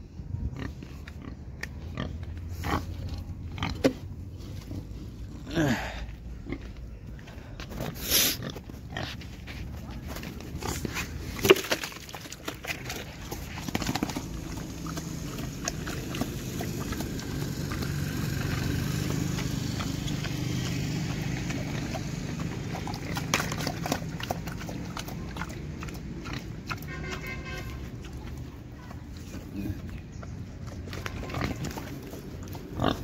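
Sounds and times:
footsteps on dry dirt: 4.3 - 14.7
pig eating from metal bowl: 10.0 - 29.6.

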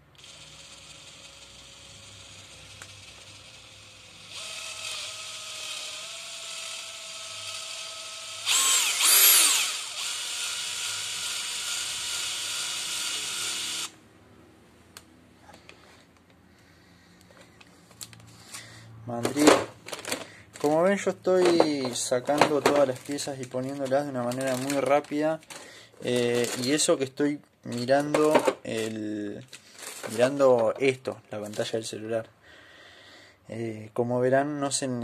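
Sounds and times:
drill motor whining: 0.2 - 14.0.

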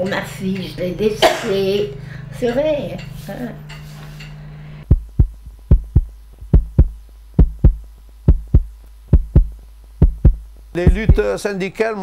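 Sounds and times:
low hum: 1.9 - 11.3
heartbeat thumps: 4.8 - 11.4.

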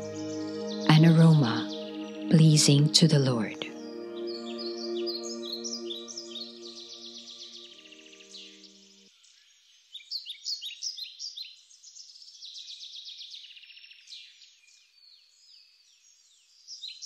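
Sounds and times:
birds chirping and singing: 0.0 - 9.0
soft background music: 0.0 - 9.1.

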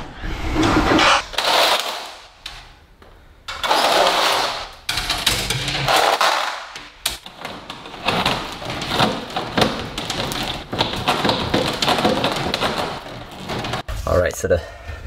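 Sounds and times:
fish tape rattling and scraping: 1.2 - 2.7, 3.5 - 13.9.

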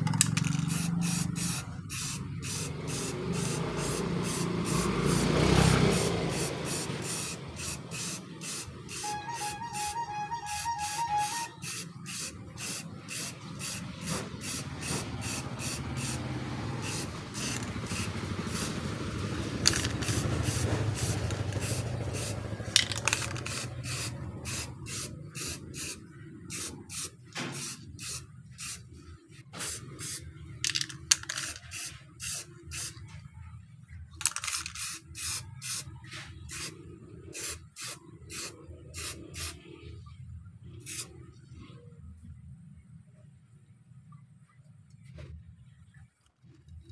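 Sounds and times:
spray paint can hissing bursts: 0.0 - 33.0, 34.2 - 39.6, 40.8 - 41.1
steady spray hiss: 0.7 - 9.2, 10.9 - 19.0, 19.6 - 28.9, 40.8 - 41.1.

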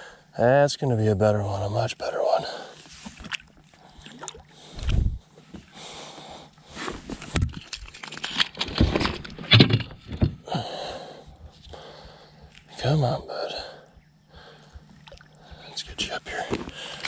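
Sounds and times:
water splashing: 3.0 - 5.0, 14.9 - 15.4
scrapes and clicks against boat: 6.7 - 10.4.

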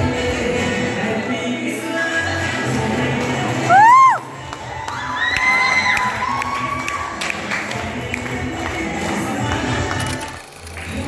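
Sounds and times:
crowd cheering and shouting: 3.1 - 7.9.

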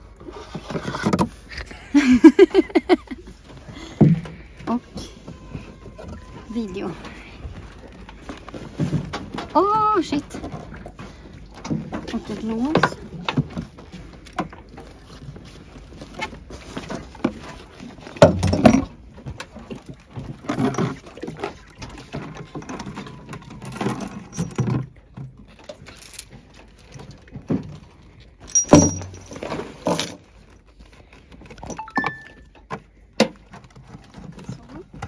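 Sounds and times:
metal items jangling: 15.7 - 16.5, 19.6 - 24.8, 25.6 - 27.2, 28.5 - 30.4, 31.6 - 32.4
knocks and clatters: 28.5 - 30.3.

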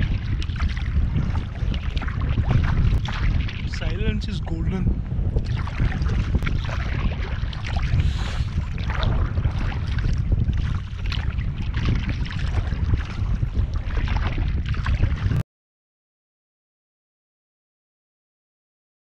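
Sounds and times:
kayak paddle splashing: 0.0 - 4.3, 5.4 - 15.4
wind buffeting microphone: 0.0 - 15.4.

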